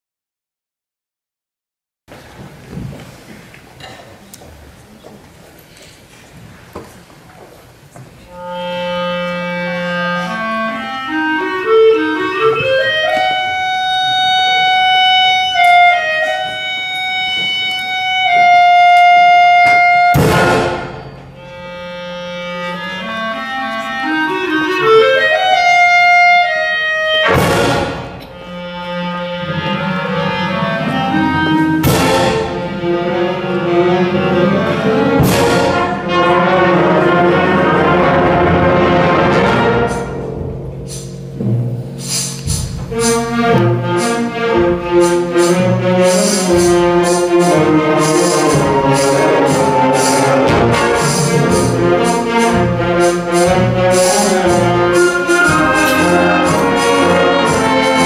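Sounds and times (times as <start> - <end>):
concert wind band playing: 8.2 - 58.0
loud percussion crashes: 20.1 - 21.4, 27.2 - 28.5, 31.4 - 32.9, 35.0 - 36.5, 37.9 - 58.0.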